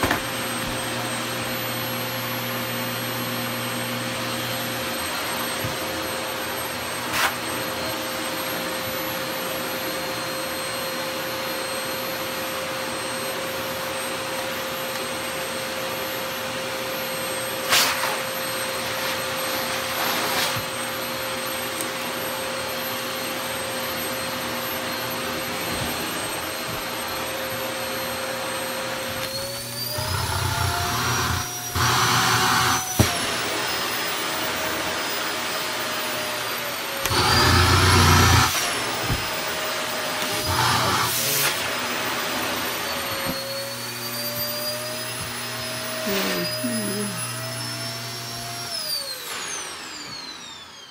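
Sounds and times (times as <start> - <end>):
vacuum cleaner whining: 0.0 - 50.9.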